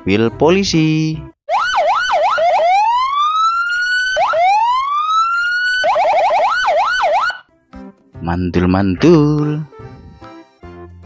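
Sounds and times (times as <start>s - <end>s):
electronic police siren: 1.5s - 7.4s.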